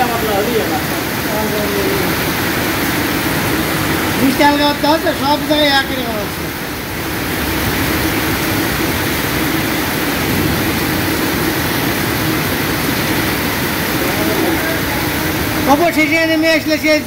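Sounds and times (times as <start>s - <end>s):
faint steady hum: 0.0s - 17.0s
heavy rain hissing: 0.0s - 17.0s.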